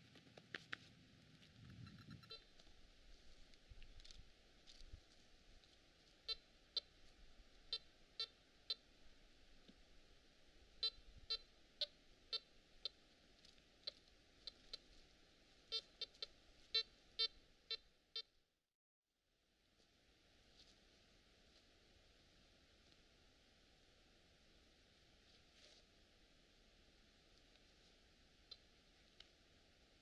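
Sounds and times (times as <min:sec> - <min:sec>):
metal detector beeping: 0:01.8 - 0:02.5.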